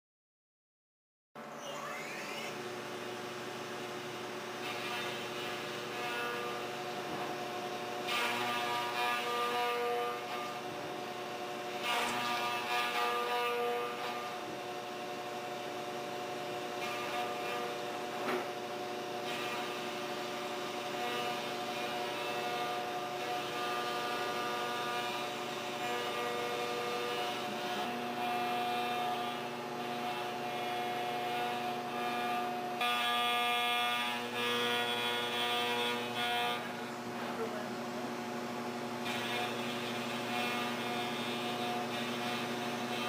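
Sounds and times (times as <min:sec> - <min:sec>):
milling machine cutting metal: 0:01.4 - 0:43.0.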